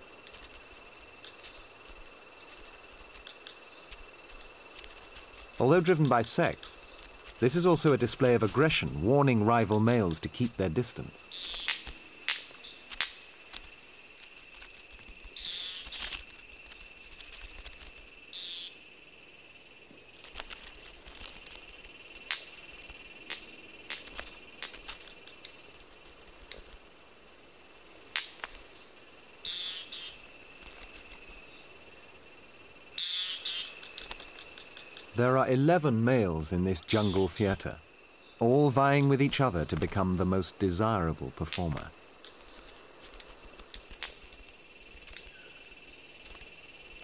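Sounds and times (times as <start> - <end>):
high insect chorus: 0.0 - 47.0
bird wing snaps: 11.4 - 18.7, 20.2 - 22.6, 23.2 - 25.6, 28.1 - 28.6, 33.0 - 35.1, 41.5 - 44.4.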